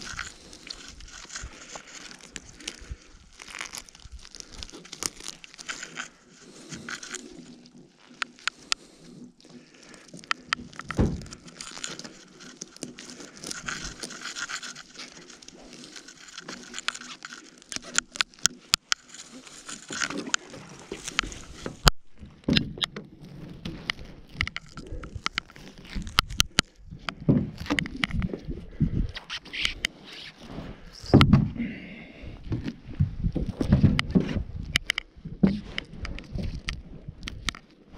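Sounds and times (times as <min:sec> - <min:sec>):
net rustling and scraping: 0:00.0 - 0:22.4, 0:23.0 - 0:31.2
thumps: 0:10.3 - 0:14.9, 0:31.0 - 0:31.6, 0:32.5 - 0:36.4.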